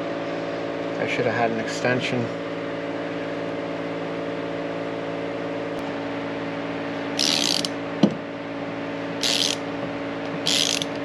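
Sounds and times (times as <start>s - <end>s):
steady mechanical hum: 0.0s - 11.0s
ratchet wrench clicking: 7.2s - 7.7s, 9.2s - 9.6s, 10.4s - 11.0s.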